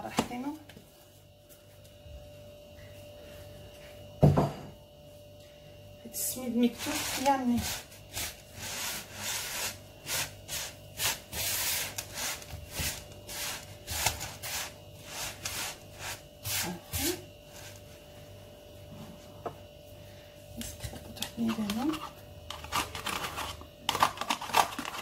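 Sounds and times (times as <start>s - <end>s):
semolina rubbed in wooden bowl: 6.6s - 17.8s.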